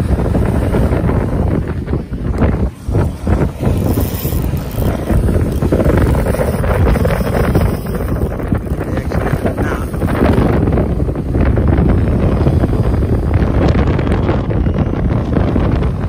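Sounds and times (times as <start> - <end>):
wind buffeting the microphone: 0.0 - 16.0.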